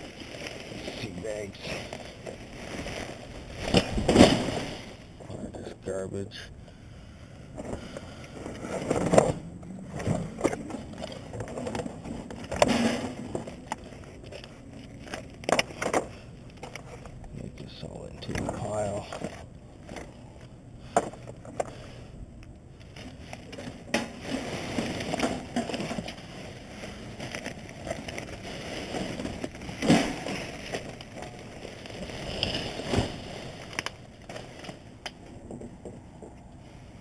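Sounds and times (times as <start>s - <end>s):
plastic bags rustling: 0.0s - 5.2s, 8.4s - 17.3s, 22.7s - 35.6s.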